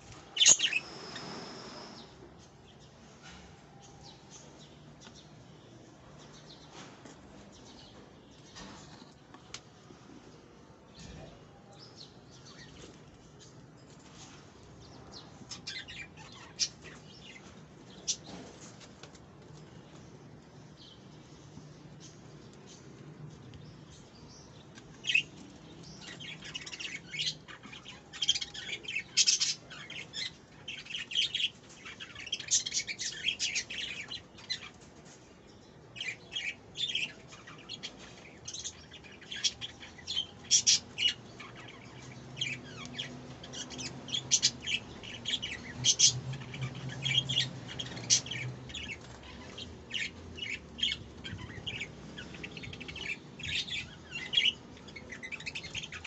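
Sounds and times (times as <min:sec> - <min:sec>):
budgerigars chirping: 0:00.4 - 0:02.0, 0:39.3 - 0:56.0.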